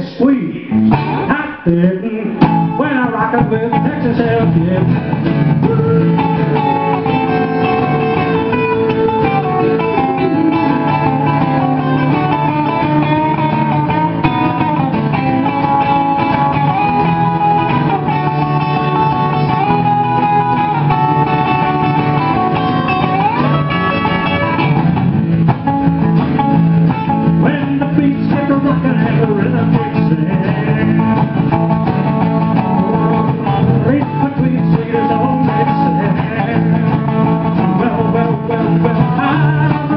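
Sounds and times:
rockabilly band playing: 0.0s - 39.9s
guitar melody: 0.6s - 39.9s.

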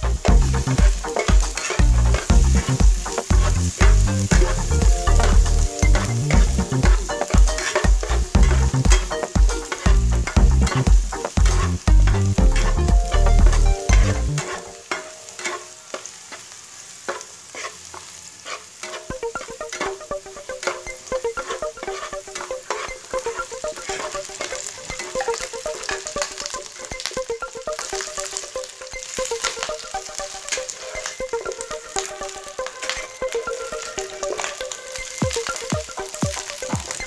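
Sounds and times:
garlic sizzling in oil: 0.0s - 37.0s
spatula scraping pan: 0.2s - 26.4s.

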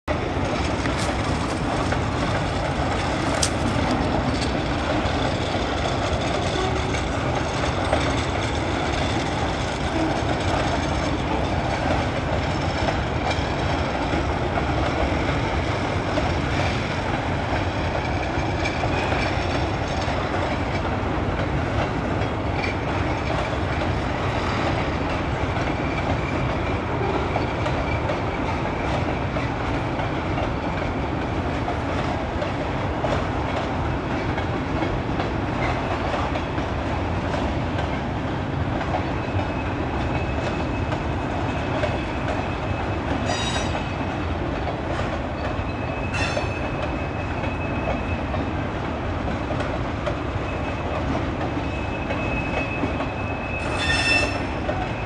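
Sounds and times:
train wheels rumbling on rail: 0.1s - 55.0s
high wheel squeal: 41.6s - 44.0s, 45.4s - 48.3s, 51.6s - 55.0s.

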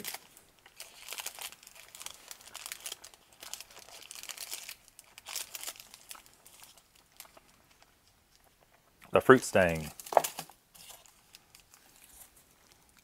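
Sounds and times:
snack wrappers rustling: 0.0s - 9.0s, 9.6s - 13.0s.

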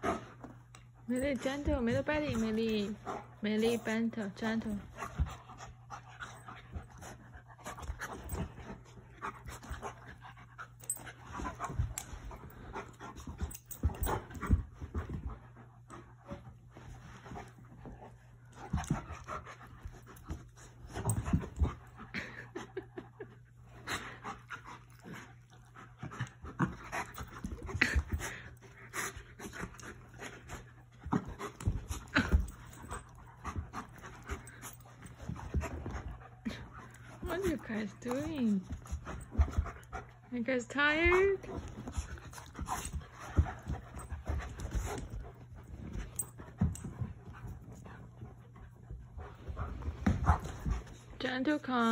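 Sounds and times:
dogs panting: 0.0s - 51.9s
steady low hum: 0.0s - 51.9s
dogs scuffling: 23.8s - 51.9s.

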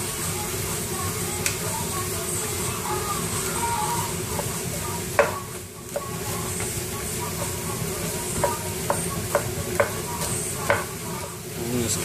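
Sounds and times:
vegetables sizzling in a frying pan: 0.0s - 12.0s
spatula knocking against pan: 4.3s - 6.7s, 7.3s - 11.0s.

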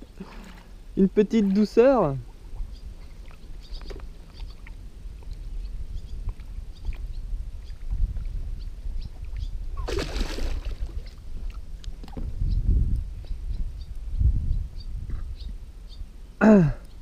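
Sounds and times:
water sloshing: 0.0s - 5.4s, 9.8s - 11.7s
fish splashing and thrashing: 9.8s - 11.7s.

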